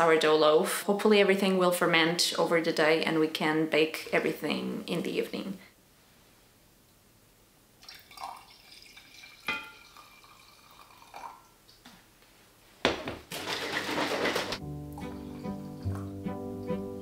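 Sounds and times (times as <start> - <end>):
coffee pouring from carafe: 7.8 - 11.4
glass clinks: 9.4 - 10.1
acoustic guitar music: 14.0 - 17.0.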